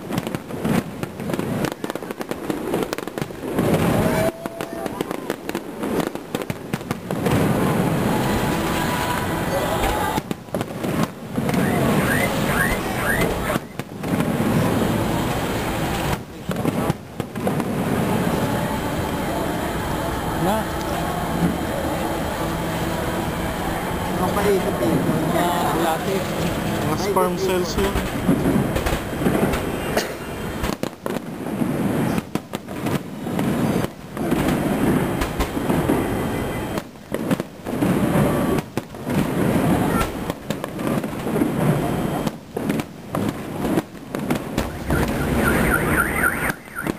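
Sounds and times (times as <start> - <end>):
fireworks bangs and crackling: 0.0 - 46.9
crowd murmuring: 3.4 - 30.8, 33.3 - 36.9, 37.7 - 42.4
short rising firework whistles: 7.2 - 16.2, 44.5 - 46.9.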